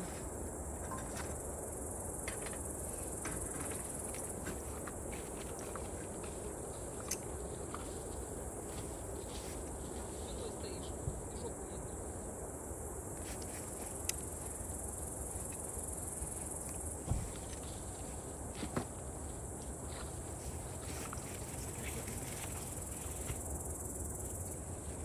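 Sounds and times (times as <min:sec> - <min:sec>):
insects chirring: 0:00.0 - 0:25.0.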